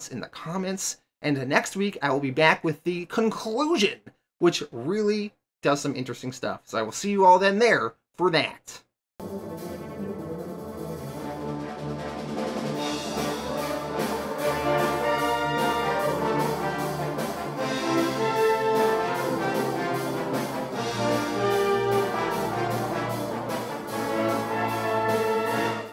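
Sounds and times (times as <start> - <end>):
orchestral music led by brass: 9.2 - 25.9.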